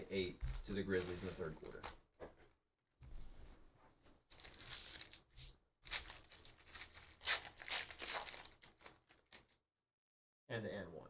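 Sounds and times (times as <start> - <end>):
foil wrapper tearing and crinkling: 4.3 - 5.2, 5.8 - 9.6.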